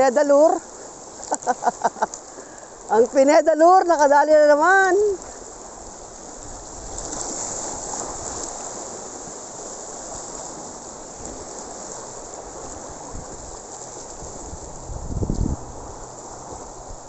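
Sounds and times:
rushing water: 0.0s - 17.0s.

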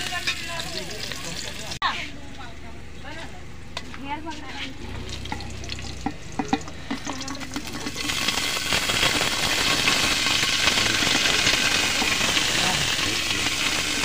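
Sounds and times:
food sizzling in hot oil: 0.0s - 1.8s, 4.8s - 14.0s.

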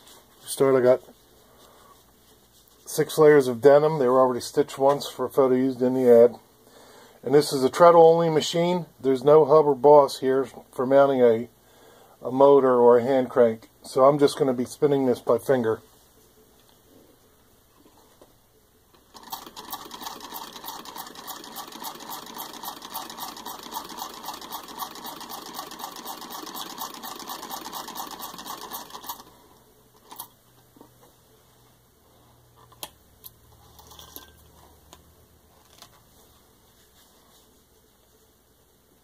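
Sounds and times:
hand-cranked sewing machine clicking: 19.0s - 29.3s.

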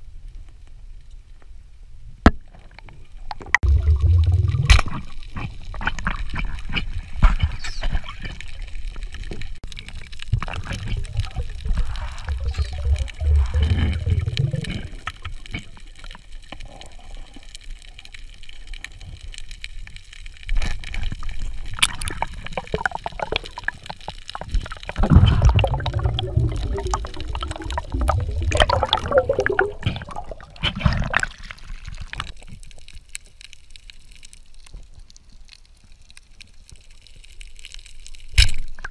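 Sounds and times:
water gurgling and bubbling: 3.5s - 6.3s, 10.3s - 15.8s, 21.4s - 32.4s.

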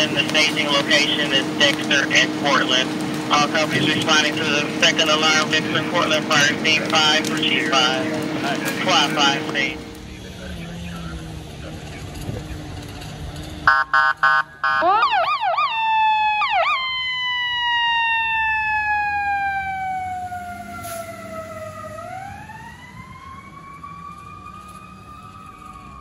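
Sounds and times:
fire engine horn blasts: 0.0s - 11.3s, 13.6s - 15.0s
fire engine siren wailing: 0.0s - 26.0s.

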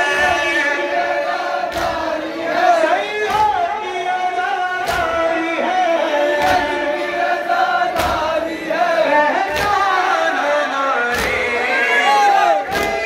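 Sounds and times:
crowd of men chanting: 0.0s - 13.0s
man singing into a microphone: 2.7s - 7.1s, 8.8s - 13.0s.

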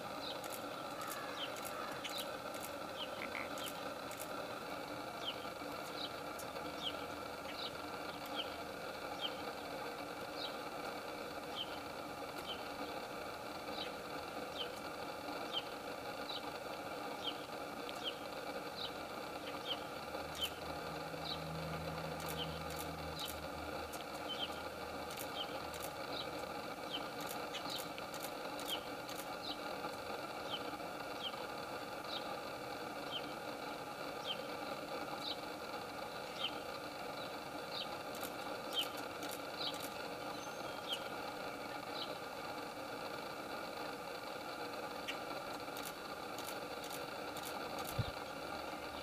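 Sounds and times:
steady hum: 0.0s - 49.0s
faint ticks: 0.2s - 4.4s, 19.4s - 30.0s, 45.0s - 48.1s.

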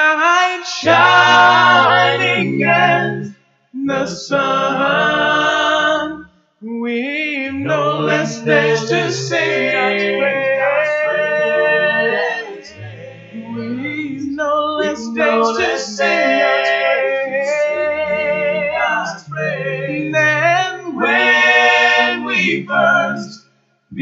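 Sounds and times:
male vocal group singing harmony: 0.0s - 24.0s.

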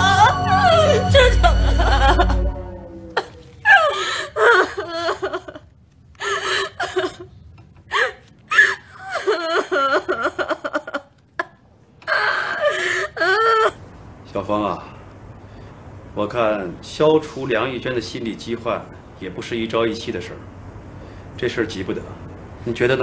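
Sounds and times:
woman sobbing: 0.0s - 13.8s.

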